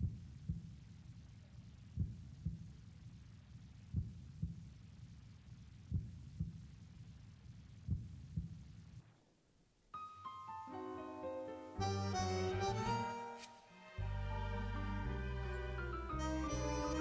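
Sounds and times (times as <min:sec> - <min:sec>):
piano run: 0:10.0 - 0:17.0
tango ensemble playing: 0:10.7 - 0:17.0.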